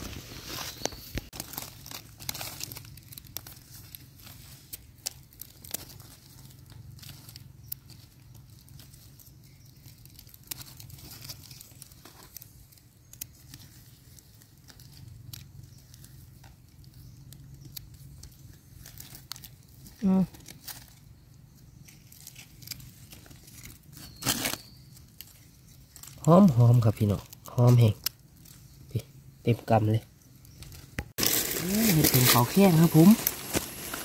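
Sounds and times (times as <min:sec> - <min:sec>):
dry leaves crackling and rustling: 0:00.0 - 0:34.0
small clicks and scrapes: 0:00.5 - 0:26.3.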